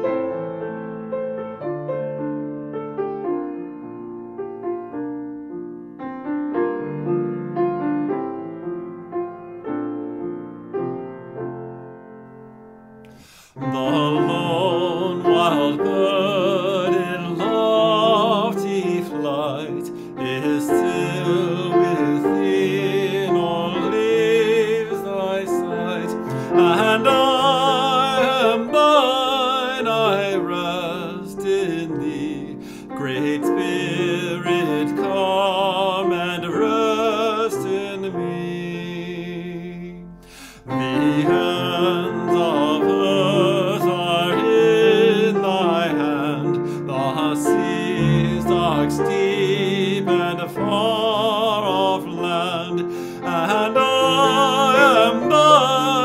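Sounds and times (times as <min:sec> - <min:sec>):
piano accompaniment: 0:00.0 - 0:56.0
person singing a hymn with vibrato: 0:13.2 - 0:56.0.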